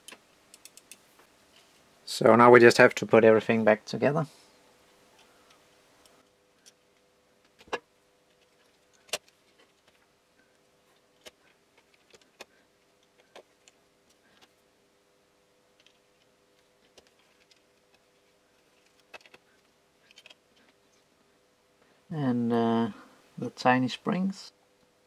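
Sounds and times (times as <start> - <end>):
faint steady hum: 0.0 - 25.0
plastic parts clicking: 11.2 - 14.6, 15.8 - 20.8.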